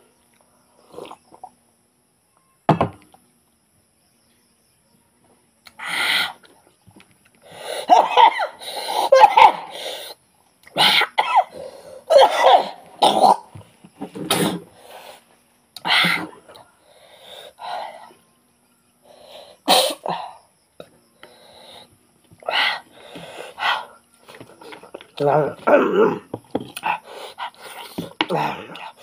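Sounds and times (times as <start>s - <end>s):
man coughing: 12.1s - 13.5s.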